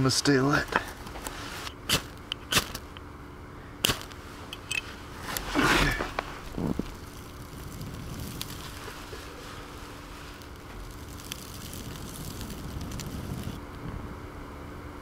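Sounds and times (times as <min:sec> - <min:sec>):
breathy blowing rush: 0:03.5 - 0:13.6.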